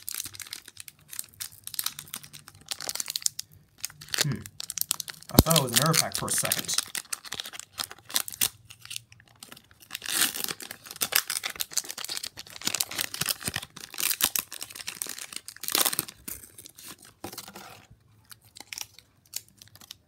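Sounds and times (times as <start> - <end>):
foil wrapper tearing and crinkling: 0.0 - 20.0.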